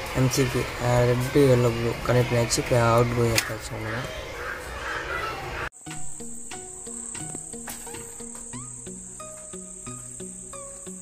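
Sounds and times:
simple melody: 0:05.8 - 0:11.0.

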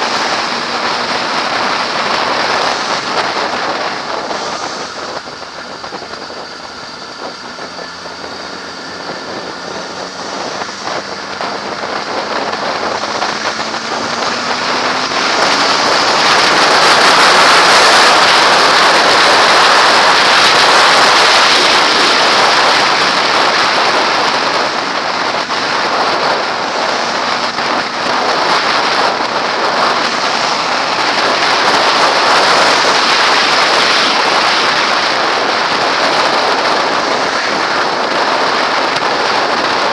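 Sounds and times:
motorcycle engine: 0:00.0 - 0:39.9
wind rushing over camera: 0:00.0 - 0:39.9.

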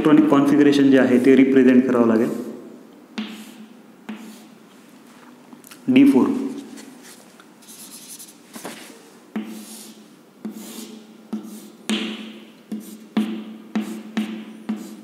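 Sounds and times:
chalk scraping on blackboard: 0:02.1 - 0:02.6, 0:03.2 - 0:04.6, 0:06.6 - 0:08.4, 0:09.4 - 0:11.8, 0:12.7 - 0:15.0
chalk tapping on blackboard: 0:03.2 - 0:04.6, 0:09.3 - 0:15.0.

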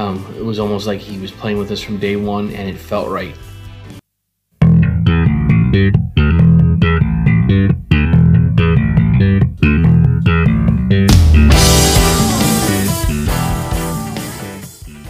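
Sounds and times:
slap bass riff: 0:04.6 - 0:15.0
rock band playing: 0:04.7 - 0:15.0
cymbal crash: 0:11.1 - 0:14.4.

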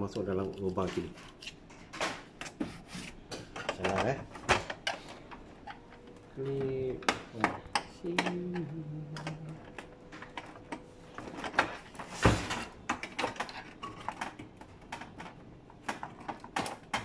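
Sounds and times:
plastic clicks and rattles: 0:12.8 - 0:17.0.

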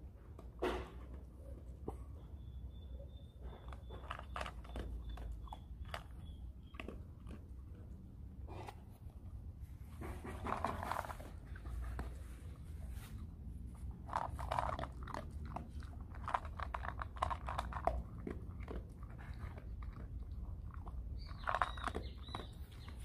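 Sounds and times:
dog crunching kibble: 0:03.5 - 0:09.3, 0:10.0 - 0:23.0.

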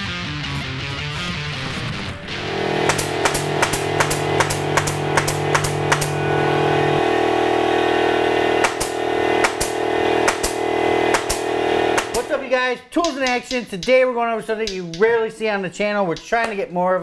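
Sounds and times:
nail gun firing: 0:02.8 - 0:06.2, 0:08.6 - 0:12.4.

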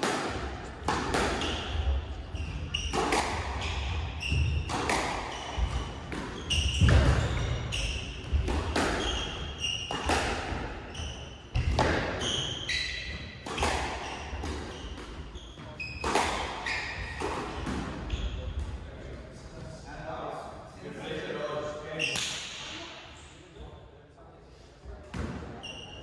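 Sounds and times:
shoes squeaking on wooden floor: 0:02.3 - 0:08.2.

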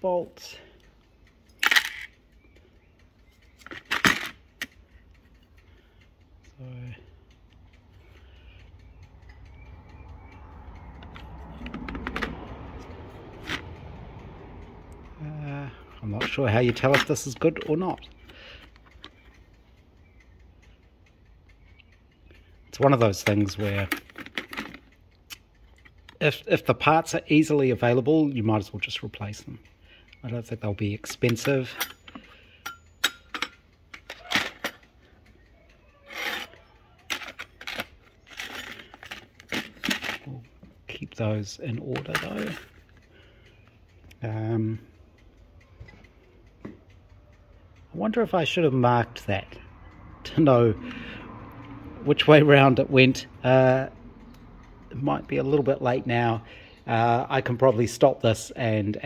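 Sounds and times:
metal clutch plates clicking: 0:00.0 - 0:59.0
metal plates clicking together: 0:01.3 - 0:02.5, 0:03.4 - 0:05.6, 0:09.2 - 0:13.8, 0:21.8 - 0:26.3, 0:30.9 - 0:40.6, 0:41.7 - 0:43.0.

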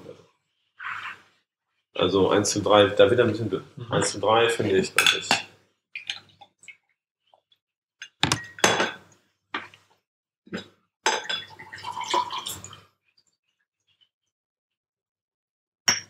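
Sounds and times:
glass bottles clinking: 0:08.0 - 0:09.0, 0:11.1 - 0:12.3
ice and liquid poured into glass: 0:11.2 - 0:12.8.

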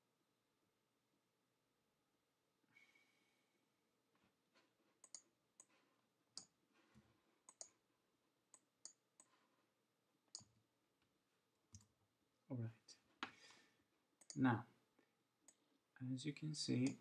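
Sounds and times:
computer mouse and keyboard clicks: 0:07.5 - 0:07.8.

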